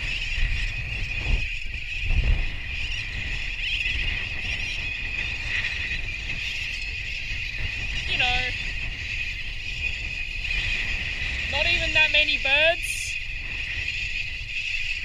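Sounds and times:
terns calling shrilly: 0.0 - 15.0
wind on microphone: 0.0 - 15.0.

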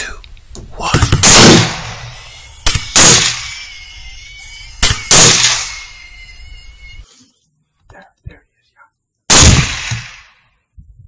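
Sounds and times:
rifle shots ringing: 1.1 - 3.7, 4.8 - 5.9, 9.3 - 10.4.

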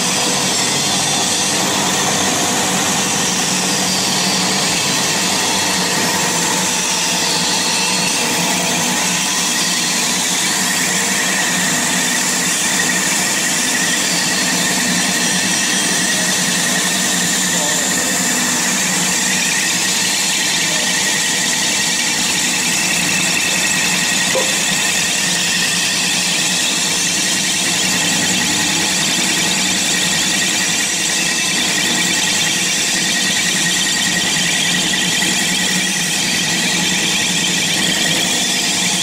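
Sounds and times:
high-pitched whining tones: 0.0 - 29.9
extruder machine running: 0.0 - 39.0.

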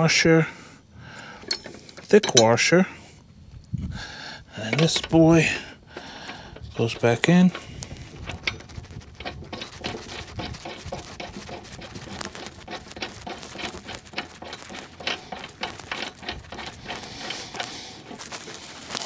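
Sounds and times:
metal bolt clicks and ticks: 1.4 - 2.5, 4.7 - 5.4.

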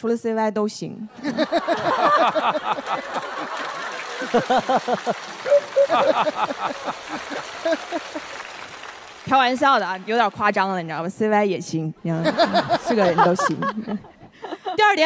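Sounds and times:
studio audience laughing: 1.1 - 8.7, 12.1 - 14.9.

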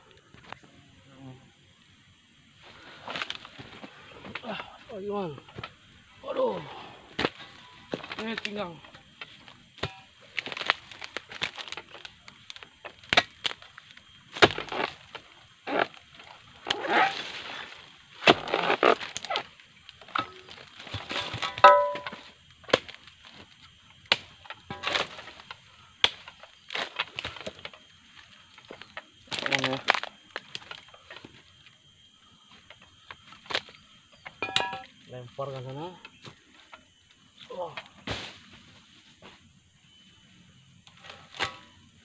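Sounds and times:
chisel chopping palm fronds: 9.8 - 13.6, 14.3 - 16.0, 18.2 - 19.5, 20.1 - 23.0, 24.1 - 27.7, 41.3 - 41.7.

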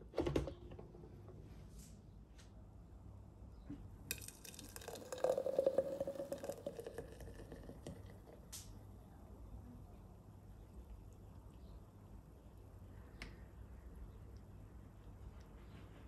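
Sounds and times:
liquid poured into a glass: 4.1 - 8.5.

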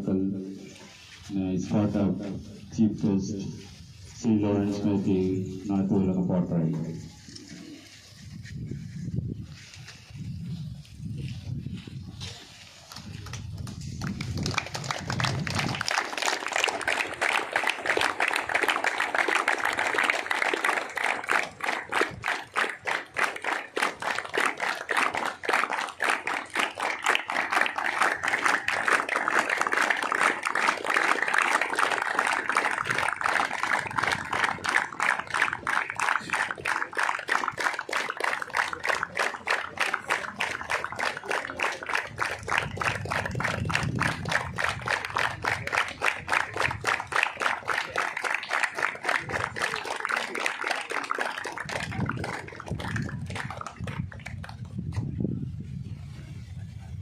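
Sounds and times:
crowd clapping in rhythm: 12.8 - 55.0.

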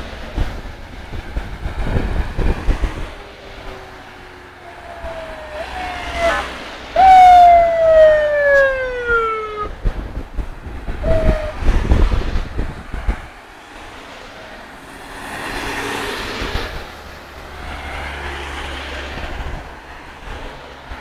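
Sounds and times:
vehicle engine rumbling past: 2.9 - 9.8
vehicle siren wailing: 4.6 - 9.8, 11.0 - 11.8.

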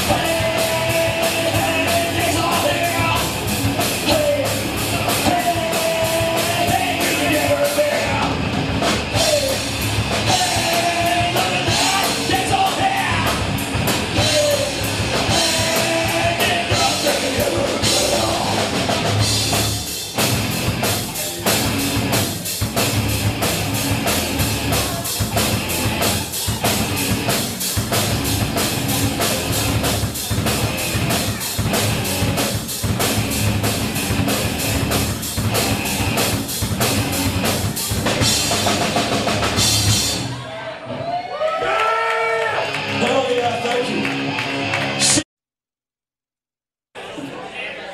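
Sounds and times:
person singing: 0.0 - 8.4, 9.1 - 13.4, 14.1 - 18.9
steady drum beat: 0.0 - 40.3
rock band playing: 0.0 - 40.5, 42.4 - 45.2.

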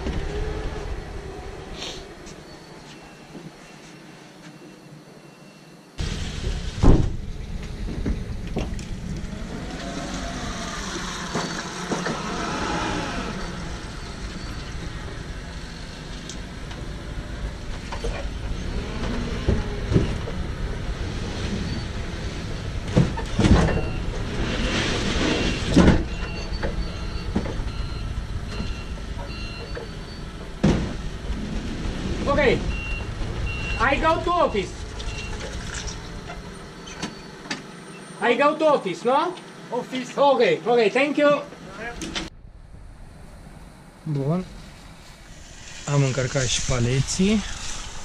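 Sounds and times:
reversing alarm beeping: 2.4 - 6.0, 25.3 - 30.4, 32.7 - 34.3, 35.0 - 35.5
loud thump: 6.4 - 7.3.

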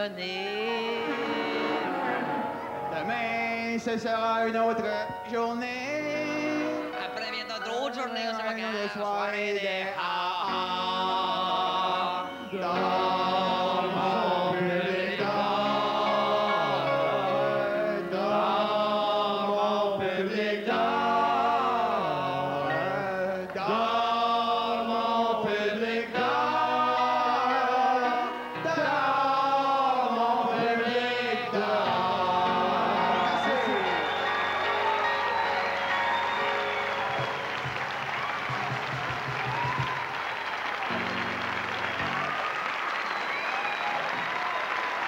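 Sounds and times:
men singing together: 0.0 - 7.0, 8.7 - 35.3.

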